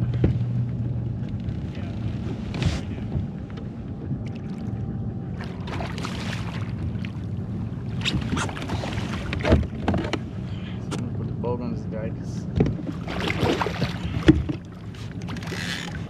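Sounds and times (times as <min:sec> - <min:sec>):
low hum: 0:00.0 - 0:16.0
fish thrashing and splashing: 0:05.4 - 0:07.1, 0:12.9 - 0:16.0.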